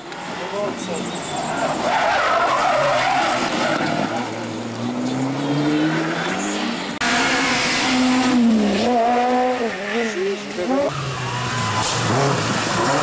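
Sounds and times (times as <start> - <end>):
rally car driving hard: 0.2 - 13.0
rally car engine accelerating: 3.1 - 13.0.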